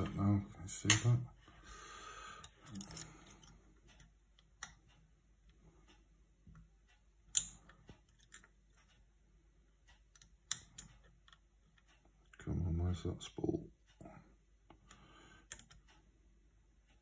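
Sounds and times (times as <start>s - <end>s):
lock pick clicking and scraping: 2.4s - 3.5s, 7.3s - 8.5s.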